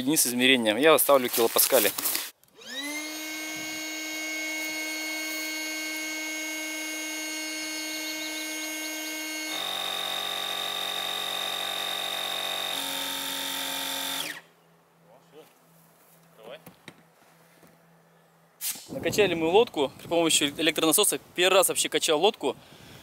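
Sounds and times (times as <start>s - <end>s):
electric pump whining: 2.5s - 14.5s.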